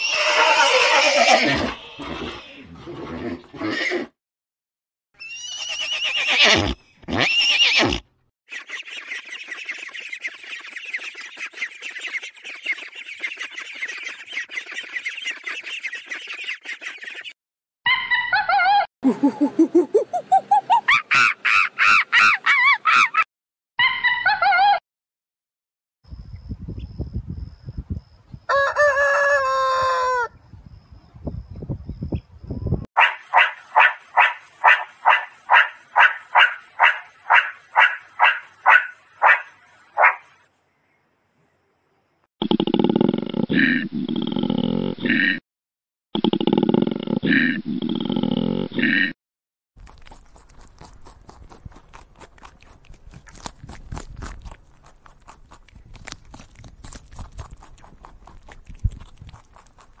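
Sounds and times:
animals chewing leafy branches: 0:49.8 - 1:00.0.

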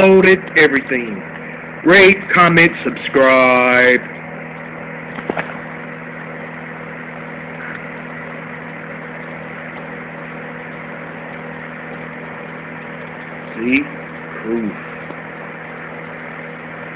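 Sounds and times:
fan heater whirring: 0:00.0 - 0:16.9
low motor hum: 0:00.0 - 0:16.9.

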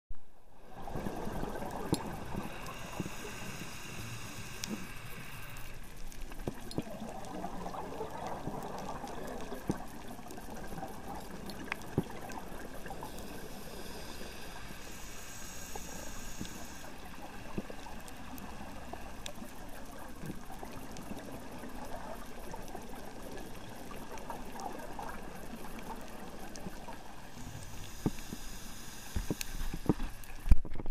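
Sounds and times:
water bubbling and gurgling: 0:00.5 - 0:28.3
muffled underwater noise: 0:00.6 - 0:05.9
faint clicks: 0:01.0 - 0:30.9.

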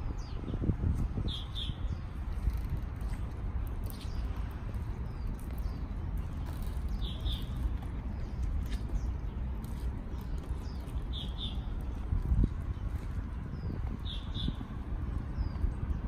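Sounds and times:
steady low rumble: 0:00.0 - 0:16.0
small bird chirping: 0:03.8 - 0:09.3, 0:10.1 - 0:11.8, 0:13.5 - 0:14.7.

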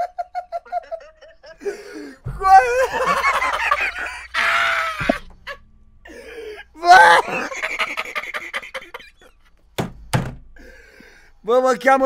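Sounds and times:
loud laughter: 0:00.0 - 0:05.6, 0:06.2 - 0:09.5.

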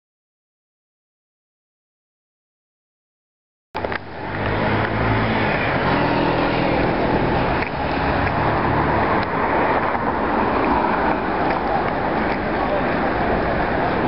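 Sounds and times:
street traffic engine hum: 0:03.8 - 0:14.0.

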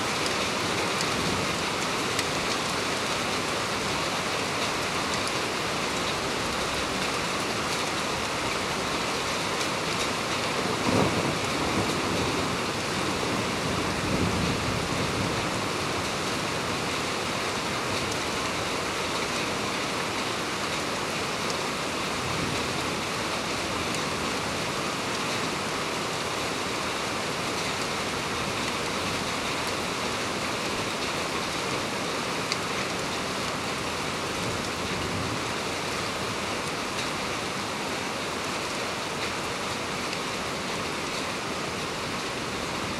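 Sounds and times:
heavy rain pouring: 0:00.0 - 0:42.9
thunder rumbling: 0:10.6 - 0:15.4.

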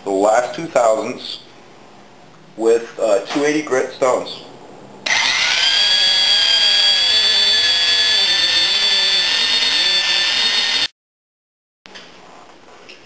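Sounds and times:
cylinder hone whining: 0:05.0 - 0:10.9.

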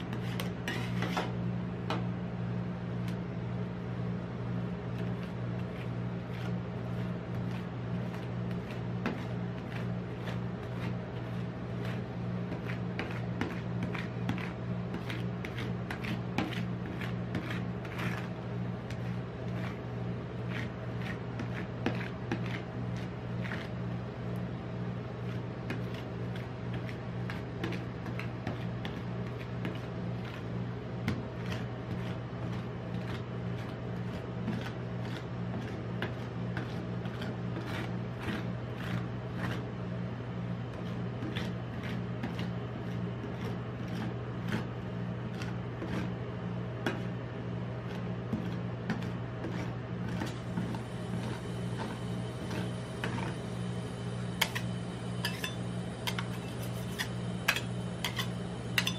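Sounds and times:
metal spatula scraping metal plate: 0:00.0 - 0:01.4, 0:54.4 - 0:58.9
steady low hum: 0:00.0 - 0:58.9.

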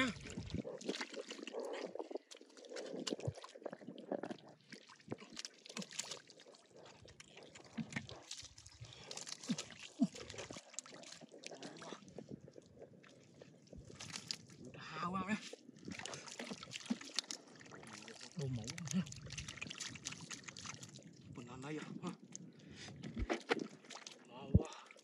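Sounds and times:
hands squelching through wet mud: 0:00.0 - 0:12.2, 0:12.9 - 0:14.6, 0:15.4 - 0:21.2, 0:23.1 - 0:25.0
wet slaps and sloshes: 0:04.8 - 0:06.4, 0:13.9 - 0:14.5, 0:15.9 - 0:21.0.

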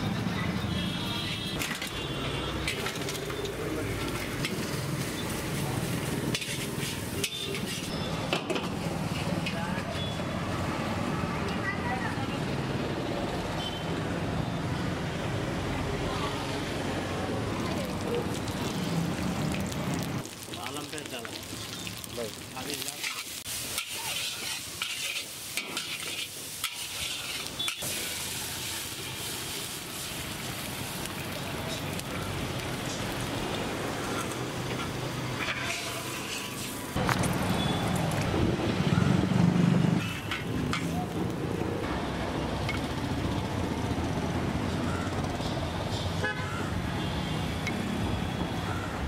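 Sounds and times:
low traffic rumble: 0:00.0 - 0:49.0
chillies sizzling in wok: 0:01.3 - 0:08.1, 0:16.4 - 0:38.4
water hissing in hot wok: 0:04.3 - 0:07.6, 0:18.2 - 0:34.5
metal ladle scraping wok: 0:06.2 - 0:08.0, 0:22.9 - 0:28.3, 0:34.0 - 0:36.8.

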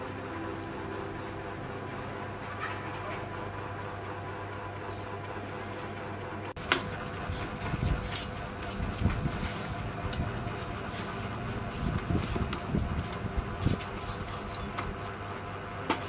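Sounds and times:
steady low hum: 0:00.0 - 0:16.0
peeler scraping melon skin: 0:06.6 - 0:15.2.

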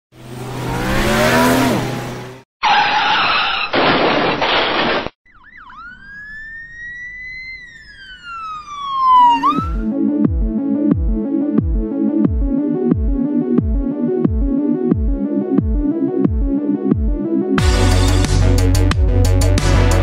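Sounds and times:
siren-like wail: 0:05.3 - 0:09.9
whoosh with falling tone: 0:05.6 - 0:09.9
electronic music with deep bass: 0:09.5 - 0:20.0.

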